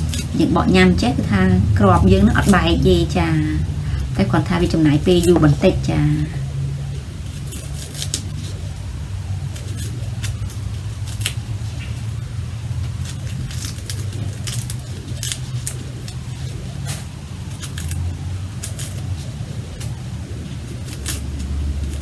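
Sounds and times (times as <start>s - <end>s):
fruit rind cracking and snapping: 0.0s - 0.4s, 6.5s - 22.0s
steady low hum: 0.0s - 22.0s.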